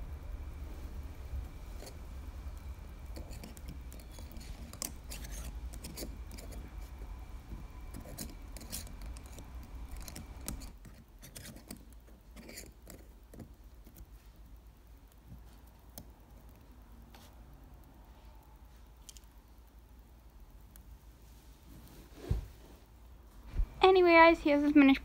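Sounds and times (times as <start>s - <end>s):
low hum: 0.0s - 10.8s.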